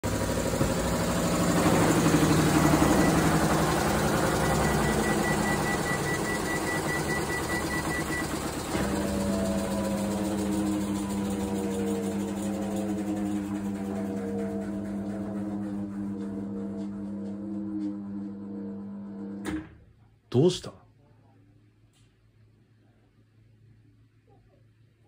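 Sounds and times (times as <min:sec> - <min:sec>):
motor hum with falling whine: 0:00.0 - 0:19.8
washing machine rattling and vibrating: 0:00.0 - 0:19.8
rapid high pulsing tone: 0:00.3 - 0:19.3.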